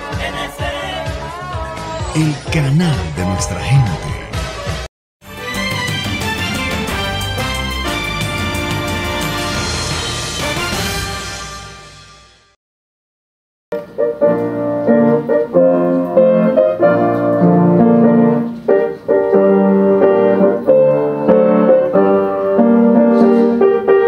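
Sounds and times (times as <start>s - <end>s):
piano music: 2.2s - 4.3s, 5.3s - 12.0s, 13.7s - 24.0s.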